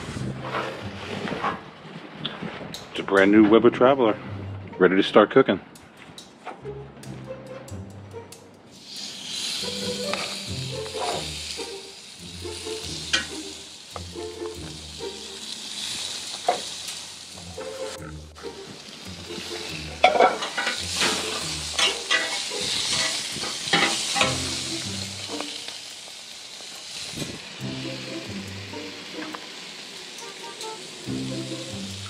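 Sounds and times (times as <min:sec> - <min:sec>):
background music: 0:00.0 - 0:01.6, 0:03.2 - 0:26.0, 0:27.5 - 0:32.0
chicken sizzling on a grill: 0:08.7 - 0:32.0
metal tongs clicking: 0:20.0 - 0:24.4.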